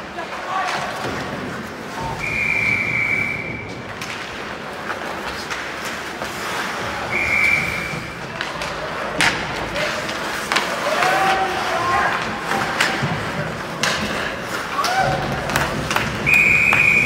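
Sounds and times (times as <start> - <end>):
sports whistle blasts: 2.1 - 3.7, 16.3 - 17.0.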